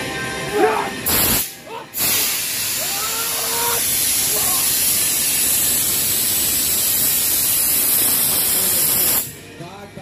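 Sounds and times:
loud spray hiss: 1.0 - 9.3
faint shouting voices: 2.8 - 4.7.

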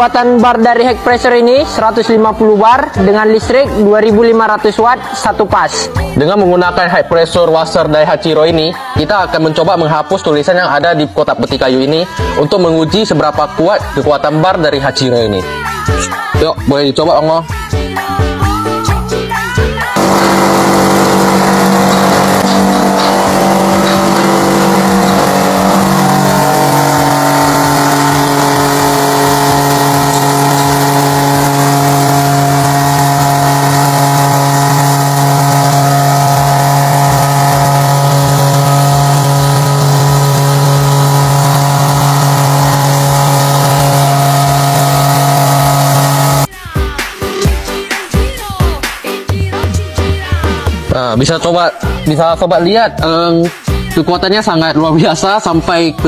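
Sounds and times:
pressure washer motor hum: 19.9 - 46.5.

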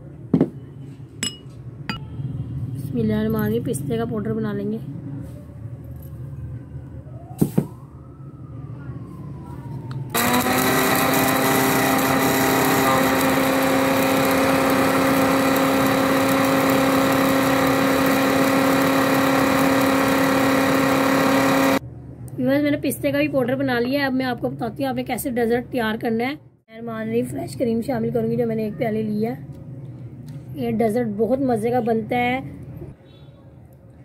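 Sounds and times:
mixer grinder whining: 10.1 - 21.8.

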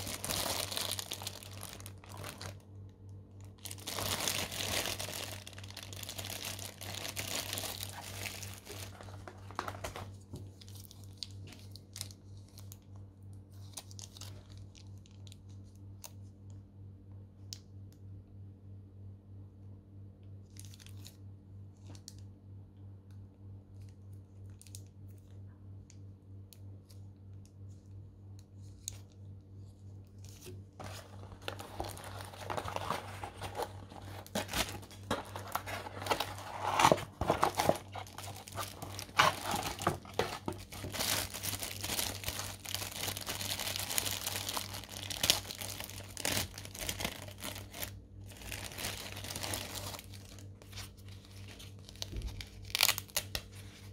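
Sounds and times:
plastic bag crinkling: 0.0 - 2.7, 3.4 - 12.7, 30.4 - 53.5
low steady hum: 0.0 - 53.9.

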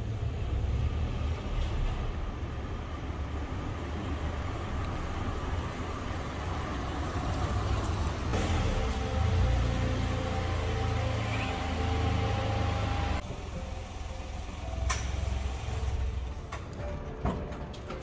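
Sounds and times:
car engine rumbling: 0.0 - 18.0.

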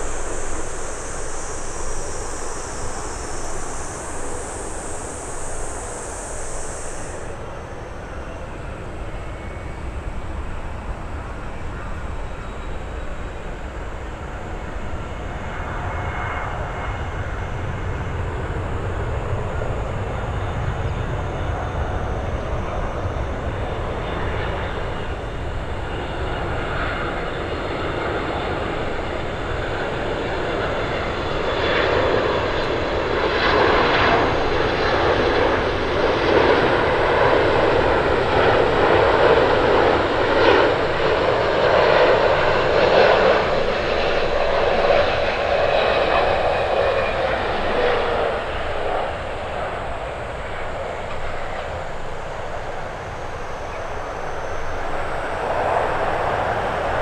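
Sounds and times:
jet airliner rumble: 0.0 - 57.0.

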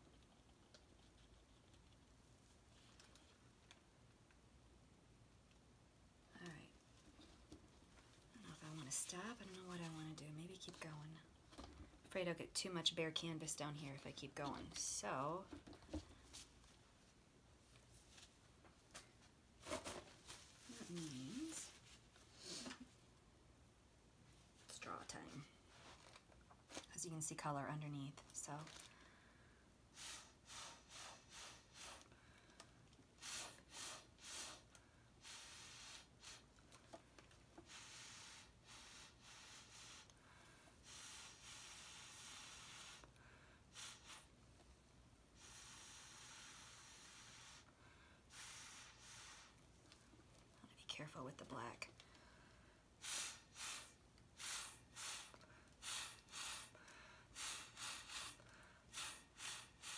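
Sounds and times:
breath puffs through a straw: 29.9 - 32.2, 33.2 - 36.5, 37.6 - 44.3, 45.4 - 47.7, 48.3 - 49.6, 53.0 - 59.9.

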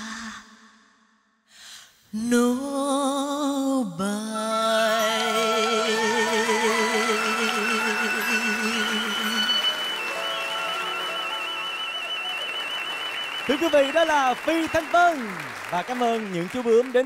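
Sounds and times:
woman singing folk song: 2.1 - 9.6.

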